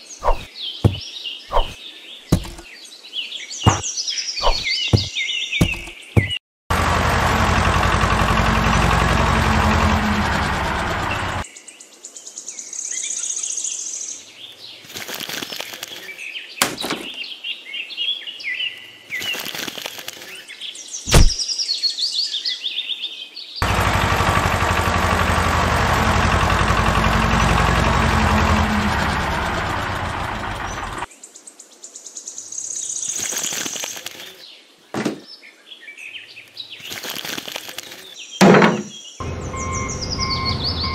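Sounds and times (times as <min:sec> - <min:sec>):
birds chirping: 0:00.0 - 0:11.5, 0:23.6 - 0:31.2, 0:35.0 - 0:40.9
toy tractor engine: 0:06.7 - 0:11.4, 0:23.6 - 0:31.1, 0:39.2 - 0:40.9
sharp crack: 0:21.1 - 0:21.4.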